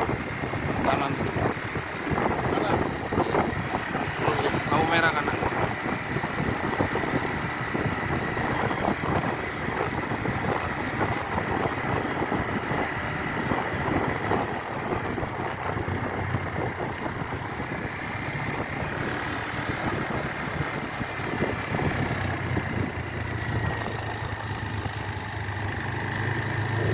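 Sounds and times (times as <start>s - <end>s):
scooter engine running: 0.0s - 26.9s.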